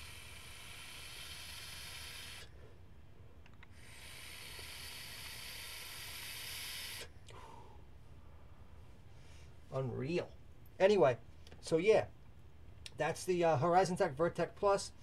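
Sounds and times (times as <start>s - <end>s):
airy vape hiss: 0.0s - 2.6s, 3.6s - 7.2s.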